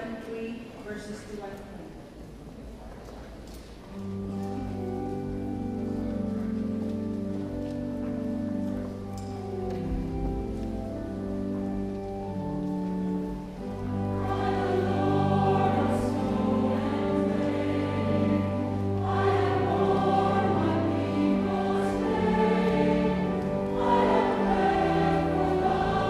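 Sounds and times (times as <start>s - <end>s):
low held accompaniment notes: 0.0s - 26.0s
choir singing a hymn: 13.6s - 26.0s.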